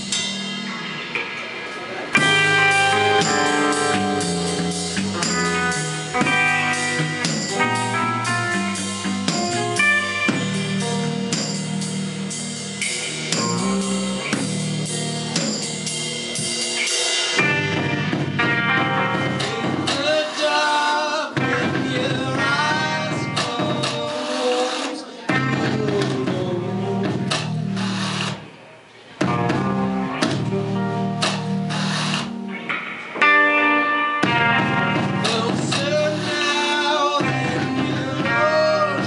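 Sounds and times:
bass guitar: 0.0 - 24.2, 25.3 - 28.5, 29.2 - 39.0
electric guitar: 0.0 - 28.6, 29.2 - 39.0
drum kit: 0.0 - 39.0
person singing: 19.2 - 27.4, 34.8 - 39.0.

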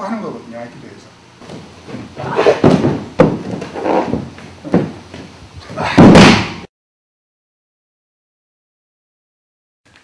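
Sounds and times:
thuds and scuffs on wooden floor: 1.4 - 6.3
body falling heavily on floor: 1.4 - 6.6.

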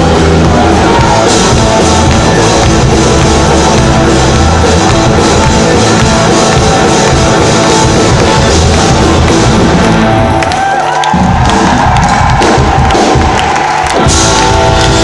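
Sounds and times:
electric guitar: 0.0 - 10.7
drum kit: 0.0 - 15.0.

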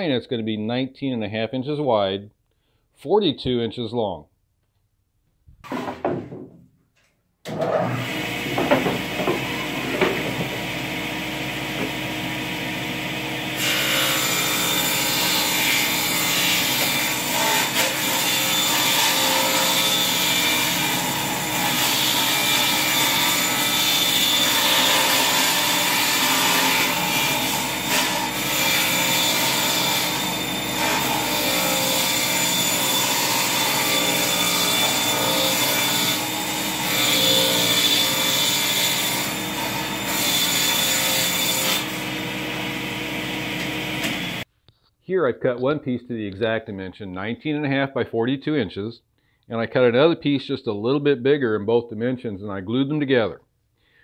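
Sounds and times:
table saw cutting panel: 7.5 - 44.4.

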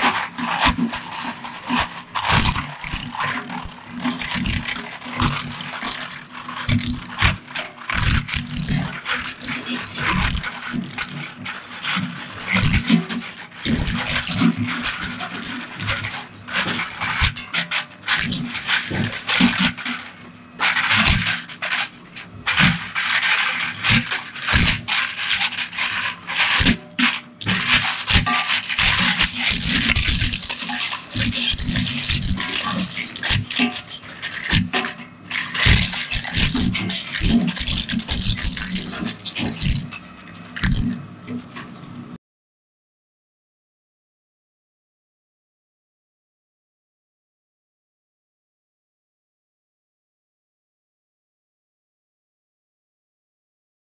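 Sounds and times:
shredder crunching plastic: 0.0 - 41.7
rattling fragments: 22.5 - 40.0.

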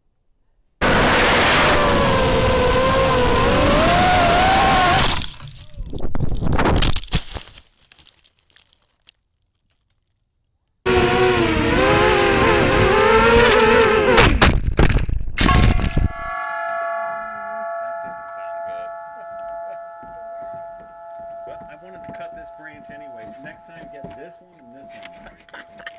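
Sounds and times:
drone motors whining: 10.9 - 14.2
crash impacts: 14.3 - 24.3
metallic ringing: 15.4 - 25.9.

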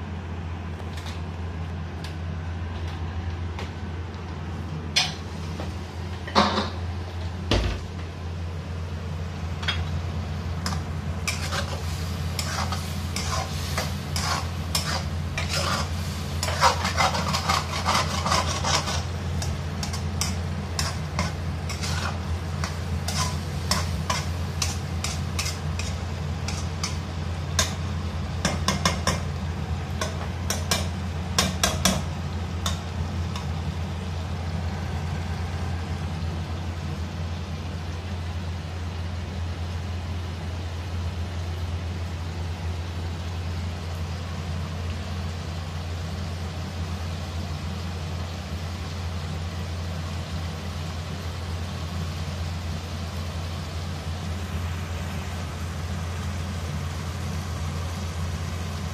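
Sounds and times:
food sizzling: 8.1 - 58.9
metal spatula scraping a wok: 10.6 - 27.8.

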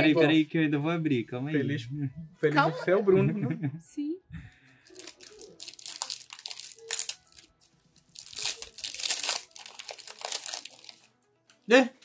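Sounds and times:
foil wrapper tearing and crinkling: 4.9 - 11.1.

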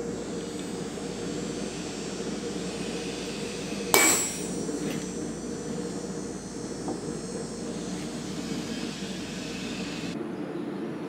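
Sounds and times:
steady low hum: 0.0 - 11.0
hammer striking anvil: 3.9 - 5.0.

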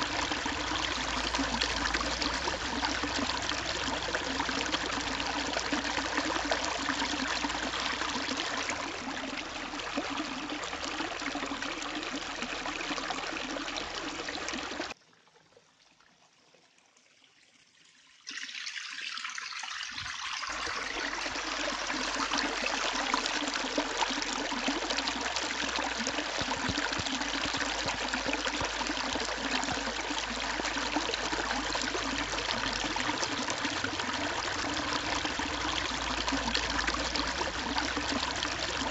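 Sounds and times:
water splashing onto stone: 25.5 - 30.0.

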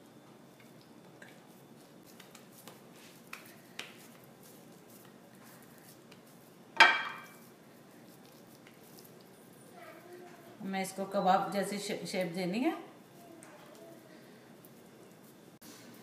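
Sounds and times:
hands shaping dough: 0.2 - 16.0
crockery clink: 6.8 - 7.4.

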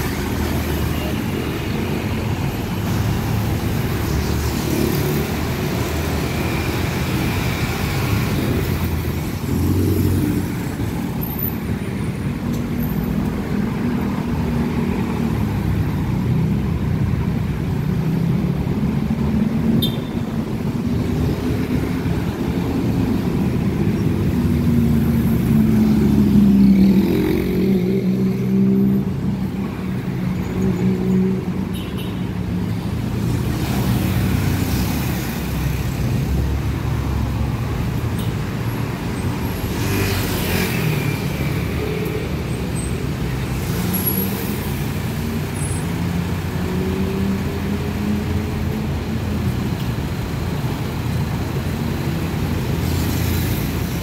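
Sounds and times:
road traffic passing: 0.0 - 54.0.

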